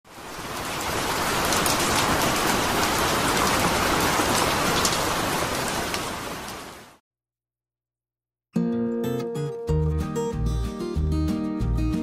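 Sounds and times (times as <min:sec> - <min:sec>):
steady rain: 0:00.1 - 0:07.0.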